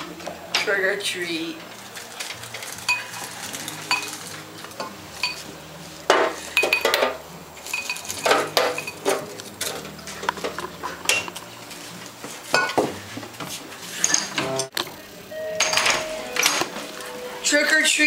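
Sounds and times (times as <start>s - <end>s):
rustling and handling noises: 1.4s - 14.4s.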